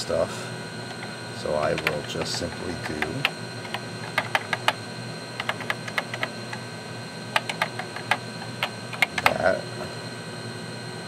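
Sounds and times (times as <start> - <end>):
keyboard key clicks: 3.7 - 4.8, 5.4 - 6.3, 7.4 - 9.4.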